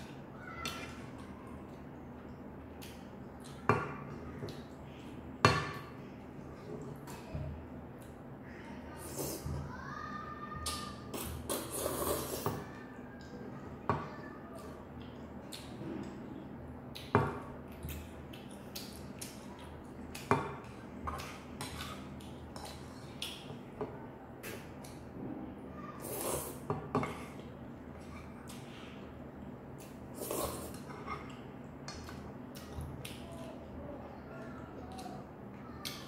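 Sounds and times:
slurping and chewing noodles: 11.1s - 12.5s, 29.8s - 33.2s.

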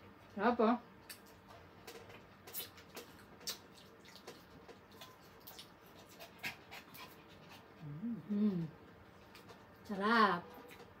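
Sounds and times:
chewing: 1.1s - 7.9s.

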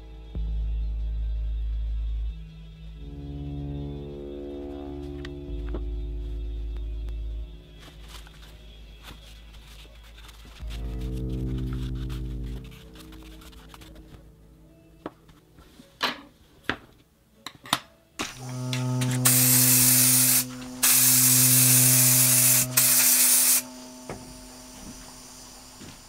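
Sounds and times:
aerosol spray can hissing: 18.2s - 26.0s.

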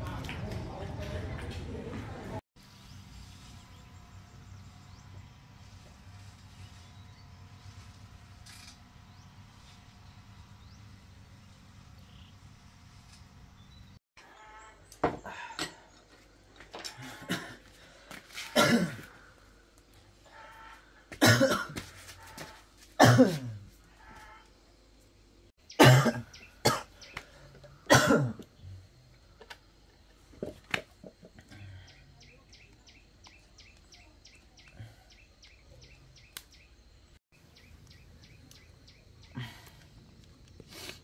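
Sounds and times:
person coughing: 16.9s - 17.6s, 18.4s - 19.2s, 21.2s - 21.8s, 23.0s - 23.6s, 25.8s - 27.0s, 27.9s - 28.4s.

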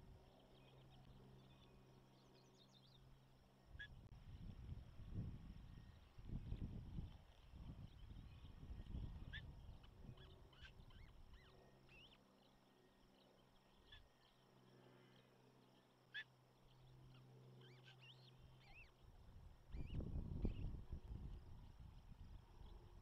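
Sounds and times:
faint bird chirps: 0.0s - 4.5s, 5.1s - 23.0s
wind rumbling on microphone: 4.1s - 11.0s, 19.1s - 23.0s.

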